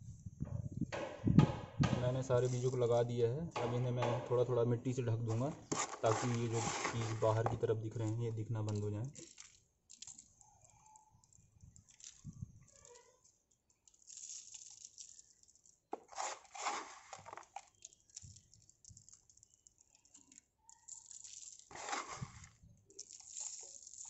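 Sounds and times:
soil rustling and crunching: 0:05.2 - 0:24.0.

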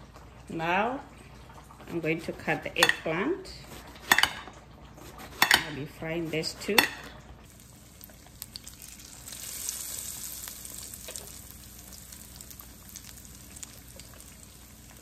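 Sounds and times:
batter frying in hot oil: 0:00.0 - 0:15.0
oil popping and crackling: 0:06.8 - 0:15.0.

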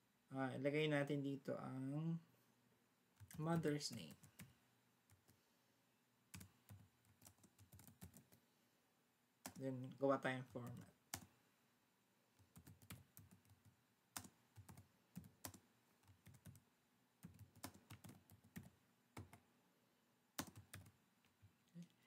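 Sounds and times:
faint keyboard typing: 0:03.2 - 0:05.4, 0:06.3 - 0:08.5, 0:09.4 - 0:11.4, 0:12.4 - 0:19.5, 0:20.4 - 0:22.0.

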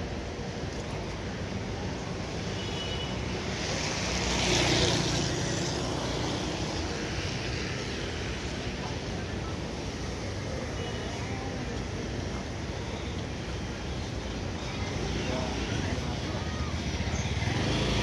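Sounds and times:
street noise: 0:00.0 - 0:18.0
motor scooter passing: 0:03.5 - 0:08.4, 0:14.9 - 0:18.0.

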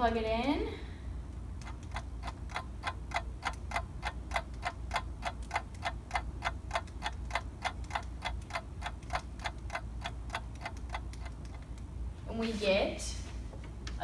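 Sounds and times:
clock ticking: 0:01.3 - 0:11.9.

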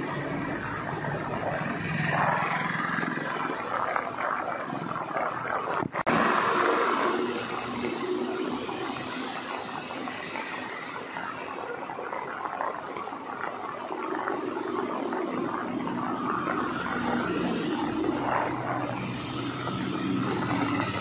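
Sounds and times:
heavy rain on road: 0:00.0 - 0:21.0
traffic on wet road: 0:00.0 - 0:21.0.

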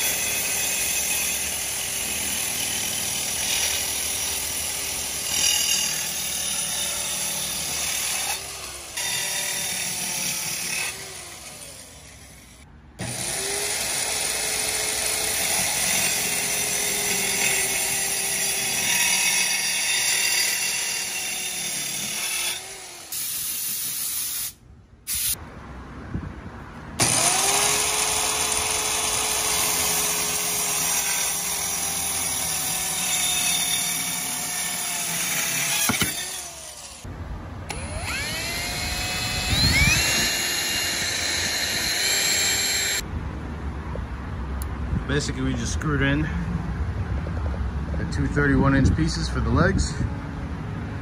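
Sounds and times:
circular saw cutting wood: 0:00.0 - 0:24.5, 0:27.0 - 0:37.1, 0:37.7 - 0:43.0.

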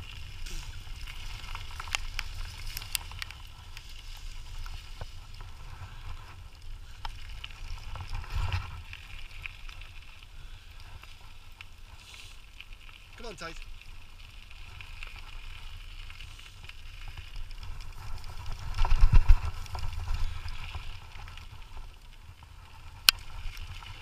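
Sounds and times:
wheels rumbling on trail: 0:00.0 - 0:24.0
wind on microphone: 0:17.6 - 0:21.1.

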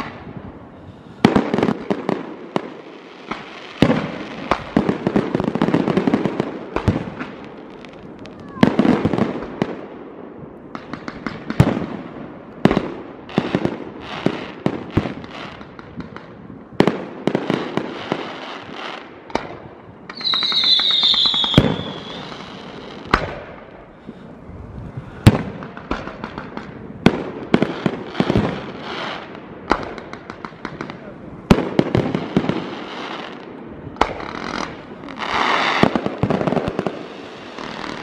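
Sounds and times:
fireworks bangs and crackling: 0:00.0 - 0:38.0
descending firework whistle: 0:20.1 - 0:23.2.

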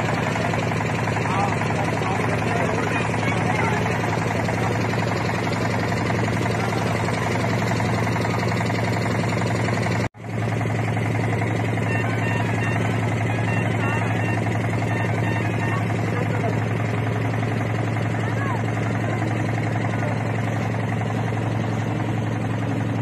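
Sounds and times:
motorboat engine drone: 0:00.0 - 0:23.0.

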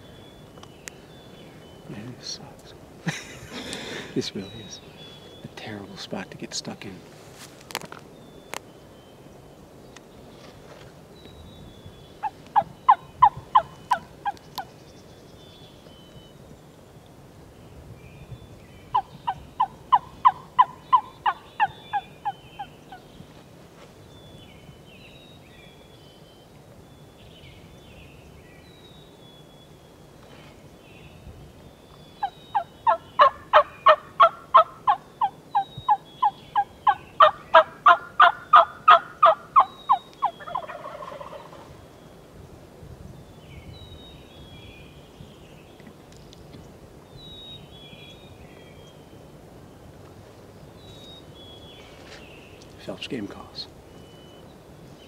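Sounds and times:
songbirds chirping: 0:00.0 - 0:55.0
turkey call hen yelps: 0:18.9 - 0:22.7, 0:32.2 - 0:41.6.

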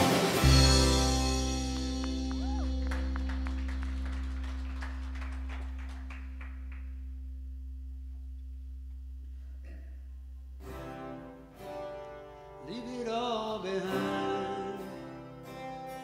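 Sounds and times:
band holding chord: 0:00.0 - 0:12.2
plucked guitar notes: 0:00.0 - 0:16.0.

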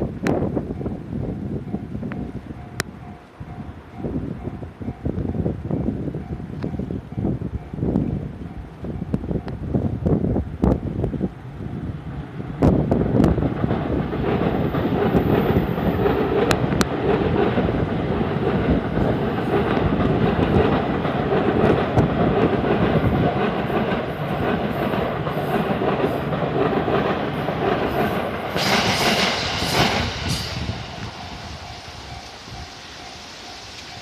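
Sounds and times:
train rumbling past: 0:00.0 - 0:34.0
wheels clattering on rails: 0:12.6 - 0:34.0.

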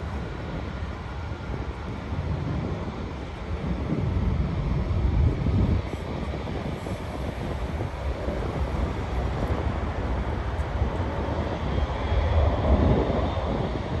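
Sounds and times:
jet engine rumble: 0:00.0 - 0:14.0
wind buffeting microphone: 0:00.0 - 0:14.0.

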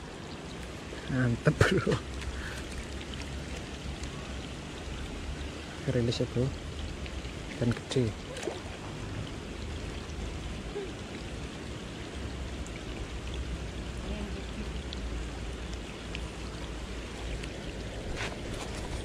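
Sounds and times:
steady rain falling: 0:00.0 - 0:19.0.

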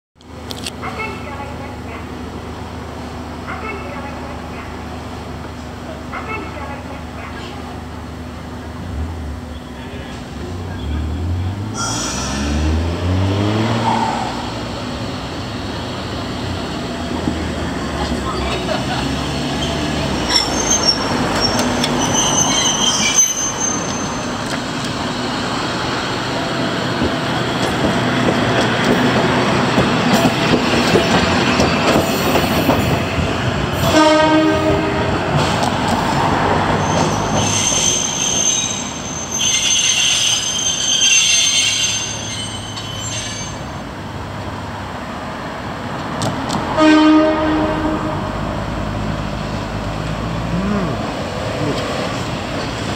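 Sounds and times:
tram running rumble: 0:00.3 - 0:52.9
high wheel squeal: 0:11.7 - 0:12.7, 0:19.5 - 0:24.6, 0:36.7 - 0:43.9
tram horn: 0:33.8 - 0:35.5, 0:46.6 - 0:48.6.

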